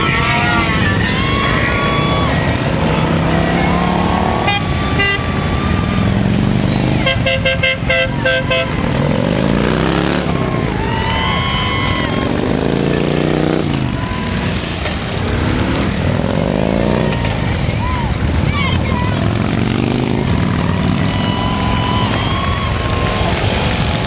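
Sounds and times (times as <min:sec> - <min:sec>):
motorcycle horns tooting: 0:00.0 - 0:10.6
engine revving: 0:00.0 - 0:10.8, 0:12.1 - 0:17.4
motorcycles pulling away: 0:00.0 - 0:24.0.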